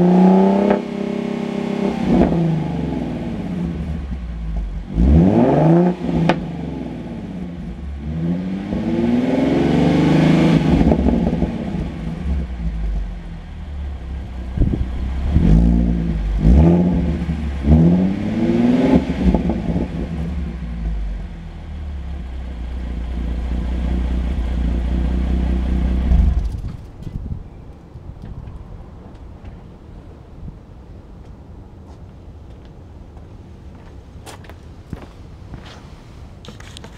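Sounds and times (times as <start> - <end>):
car engine revving: 0.0 - 27.0
car engine idling: 10.5 - 27.1.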